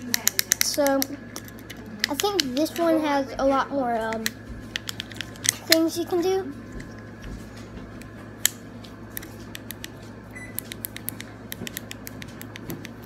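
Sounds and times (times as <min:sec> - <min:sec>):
plastic fidget cube clicking: 0:00.1 - 0:02.9.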